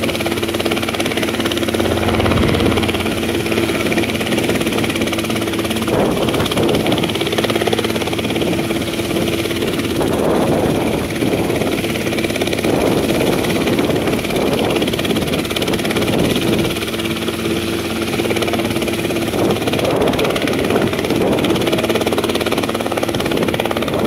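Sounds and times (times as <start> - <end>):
helicopter hovering: 0.0 - 14.3.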